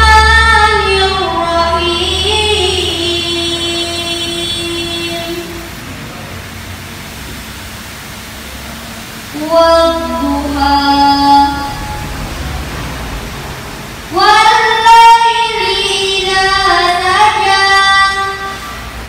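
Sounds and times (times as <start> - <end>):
boy reciting in melodic sung style: 0.0 - 5.8, 9.3 - 12.1, 14.1 - 19.0.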